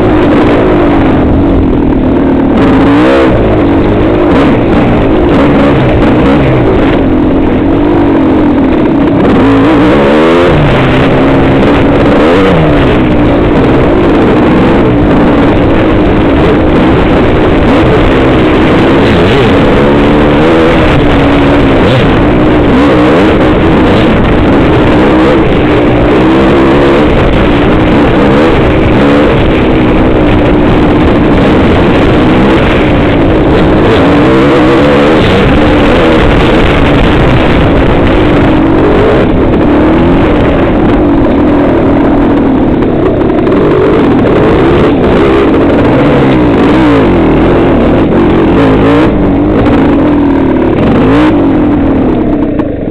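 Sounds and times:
dirt bike engine revving: 0:00.0 - 0:52.9.

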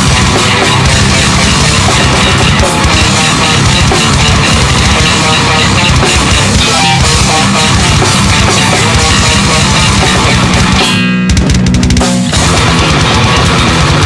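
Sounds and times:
bass guitar: 0:00.0 - 0:14.0
distorted electric guitar: 0:00.0 - 0:14.0
drum kit: 0:00.0 - 0:14.0.

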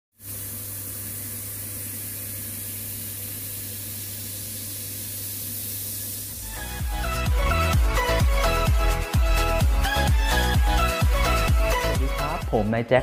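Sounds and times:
beat-driven music: 0:06.4 - 0:13.0.

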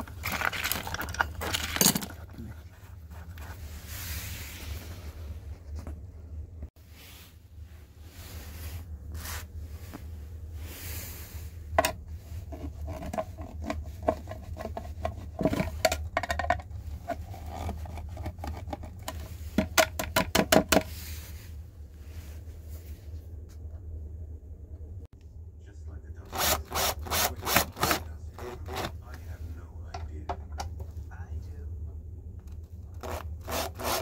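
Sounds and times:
steady low hum: 0:00.0 - 0:34.0
small metal tools clinking: 0:00.1 - 0:02.3.

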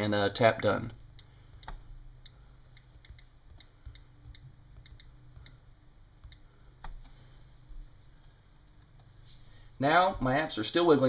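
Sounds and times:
on-screen keyboard clicking: 0:01.5 - 0:05.6, 0:08.2 - 0:09.1.

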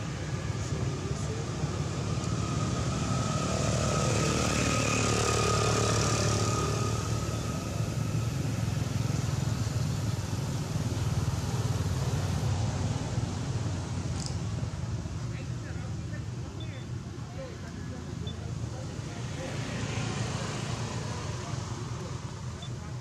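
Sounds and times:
vehicle engine passing by: 0:00.0 - 0:13.6.

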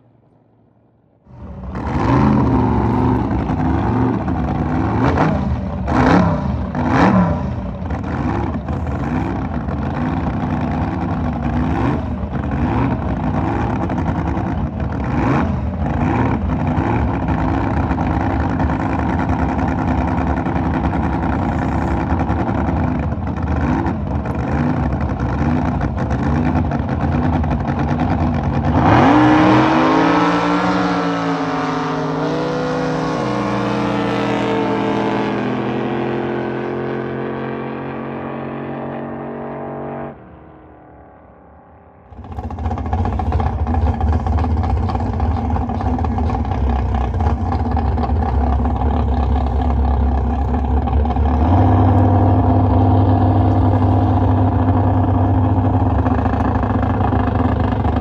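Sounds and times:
boat engine at full throttle: 0:01.2 - 0:58.0
boat engines idling and blipping: 0:01.4 - 0:29.1, 0:42.2 - 0:58.0.

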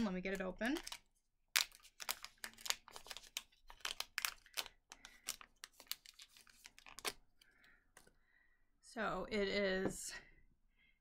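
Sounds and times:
packaging crinkling and tearing: 0:00.6 - 0:07.4.

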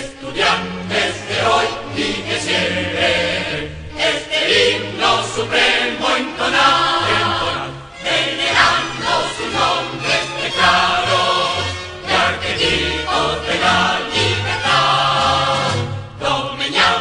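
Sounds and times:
choir singing a hymn: 0:00.0 - 0:17.0
instrumental accompaniment: 0:00.2 - 0:17.0.

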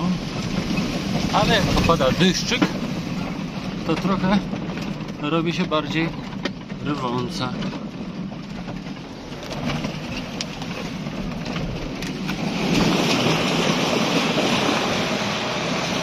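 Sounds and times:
river water running over stones: 0:10.3 - 0:16.0.

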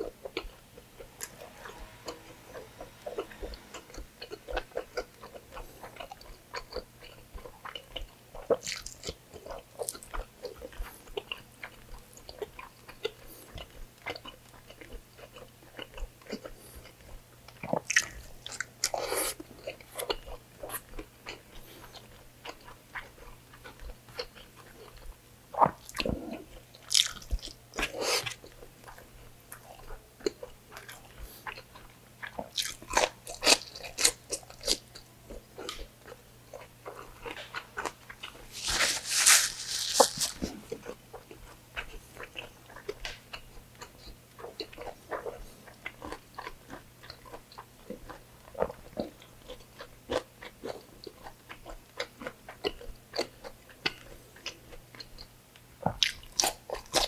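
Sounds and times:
man chewing with wet mouth smacks: 0:02.5 - 0:38.5, 0:40.4 - 0:57.0
paper napkin rubbing: 0:38.5 - 0:40.7.

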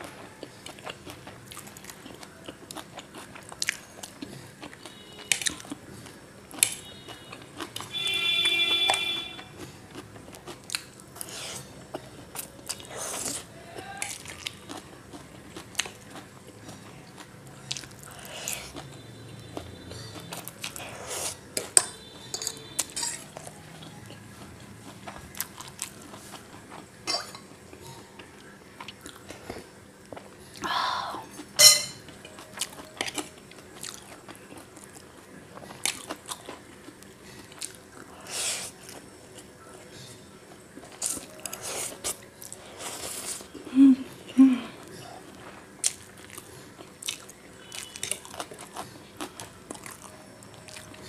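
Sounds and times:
cutlery clicking on plate: 0:21.6 - 0:23.3, 0:31.6 - 0:32.0
spoon clinking on glass bowl: 0:21.8 - 0:23.2, 0:31.6 - 0:32.0
chewing and slurping noodles: 0:32.3 - 0:39.5, 0:40.5 - 0:43.7.

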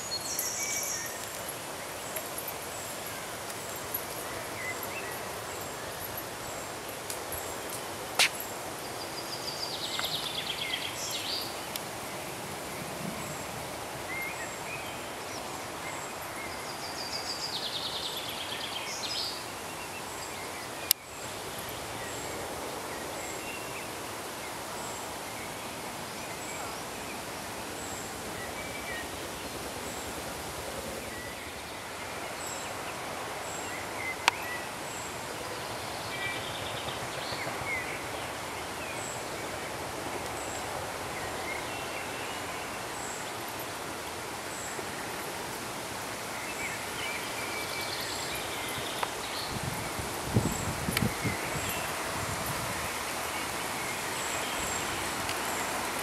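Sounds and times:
birds chirping faintly: 0:00.0 - 0:12.3
wind and leaves rustling: 0:00.0 - 0:56.0.

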